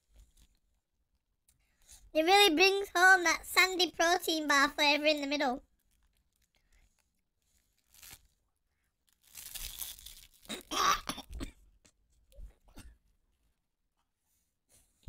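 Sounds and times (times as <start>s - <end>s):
wet chewing and crunching: 5.7s - 11.4s.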